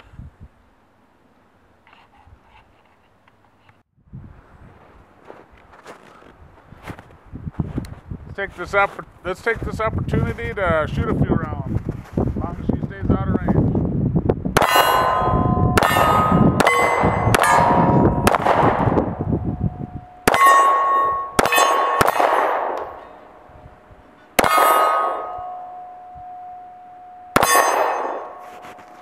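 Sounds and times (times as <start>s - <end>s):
pistol shots: 14.6s - 19.2s, 20.2s - 23.3s, 24.4s - 25.8s, 27.3s - 28.4s
steel plate clanging: 14.6s - 29.0s.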